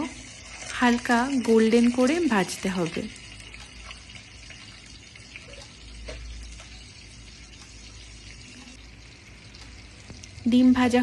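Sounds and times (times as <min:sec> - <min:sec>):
eggs sizzling in oil: 0:00.0 - 0:11.0.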